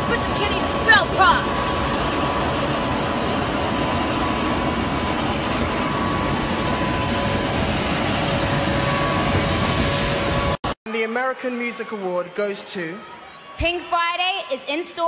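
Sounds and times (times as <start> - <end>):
jet turbine running: 0.0 - 10.7.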